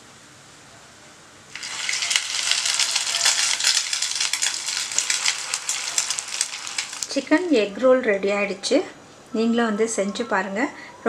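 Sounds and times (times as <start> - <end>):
oil sizzling while deep-frying: 1.5 - 7.8.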